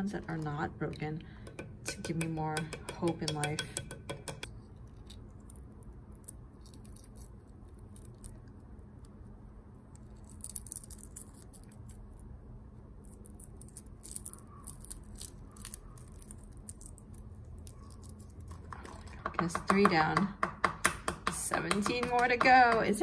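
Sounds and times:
faint low hum: 0.0s - 20.4s
eggshells crackling: 4.6s - 12.3s, 12.9s - 20.0s.

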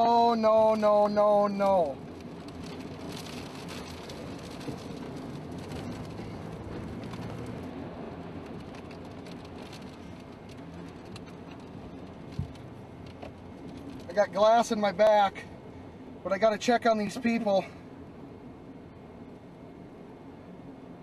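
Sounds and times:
rain and debris pattering: 0.0s - 15.5s.

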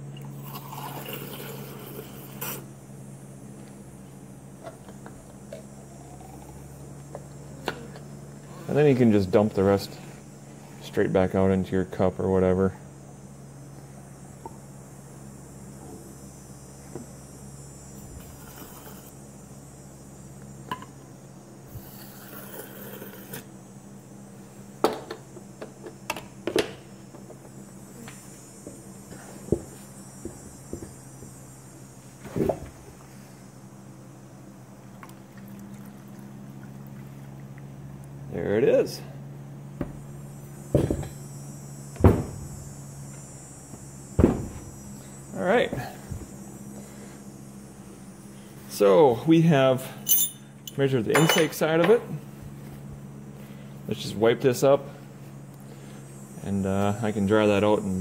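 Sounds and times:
low hum: 0.0s - 21.8s.

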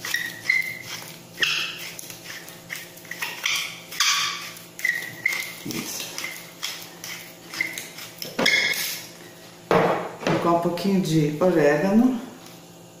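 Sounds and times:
gloves squeaking: 0.0s - 9.0s
fingers rustling seasoning: 0.0s - 9.1s.

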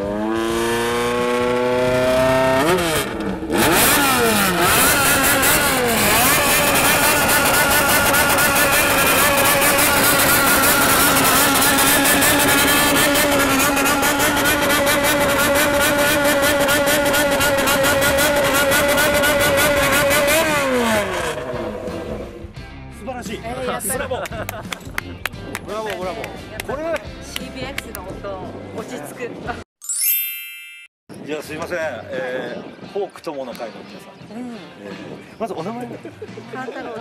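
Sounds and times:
motorcycle engine revving: 0.0s - 22.6s.

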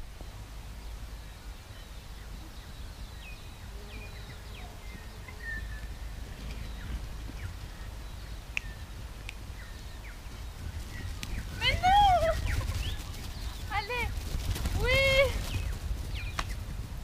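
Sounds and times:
small birds chirping: 0.0s - 16.8s
wind rumble on microphone: 0.0s - 17.0s.

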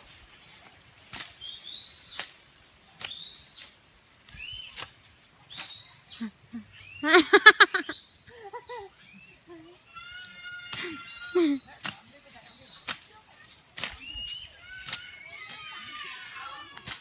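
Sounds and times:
short high rising and falling calls: 5.9s - 9.5s.

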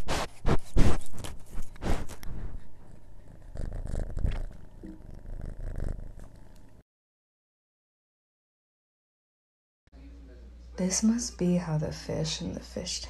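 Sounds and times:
cat purring: 0.0s - 6.8s.

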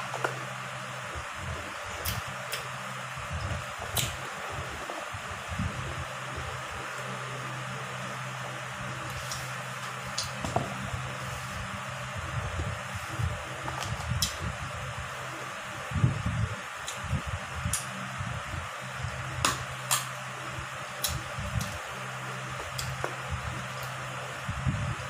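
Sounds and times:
electric fan humming: 0.0s - 25.0s.

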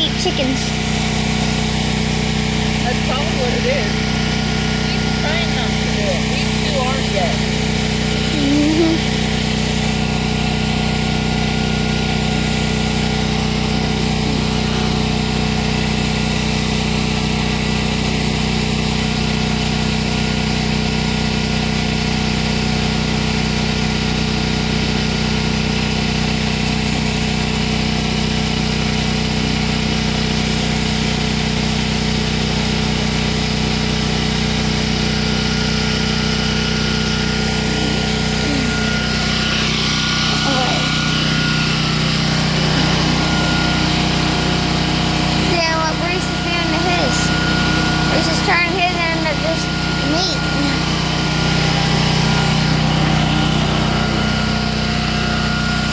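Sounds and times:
motor running steadily: 0.0s - 55.9s.

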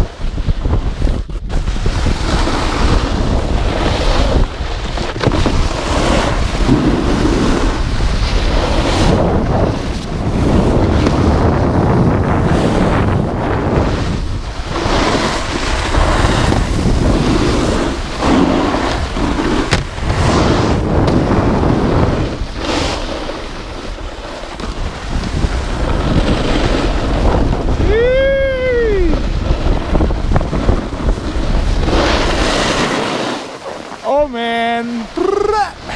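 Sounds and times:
snowboard edges scraping snow: 0.0s - 35.9s
wind on microphone: 0.0s - 35.9s
sharp knock: 19.7s - 20.0s.

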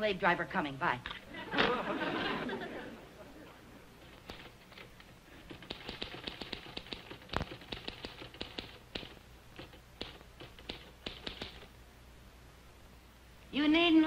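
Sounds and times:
typewriter keys clacking: 4.1s - 4.9s, 5.5s - 11.7s.

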